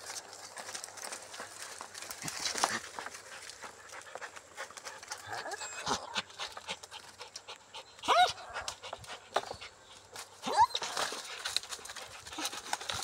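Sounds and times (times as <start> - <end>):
dog yelp: 8.0 - 8.7, 10.4 - 11.1.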